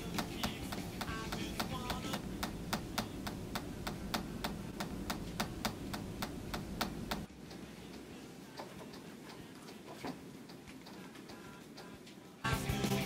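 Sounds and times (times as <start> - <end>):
low hum: 0.0 - 8.5
pencil tapping on desk: 0.1 - 7.3.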